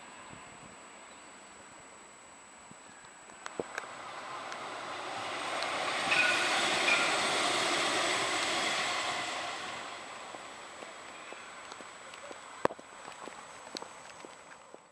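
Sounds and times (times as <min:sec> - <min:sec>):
tram wheels rushing on track: 0:03.5 - 0:14.9
high wheel squeals: 0:03.6 - 0:14.0.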